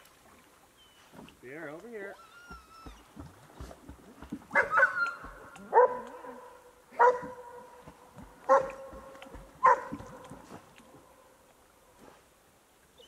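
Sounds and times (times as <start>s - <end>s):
dog barking: 4.5s - 7.7s, 8.5s - 10.2s.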